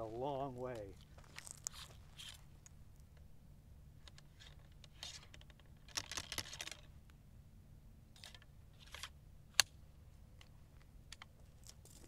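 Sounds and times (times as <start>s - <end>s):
rifle loading clicks and scrapes: 1.3s - 2.8s, 4.0s - 6.9s, 8.2s - 9.7s.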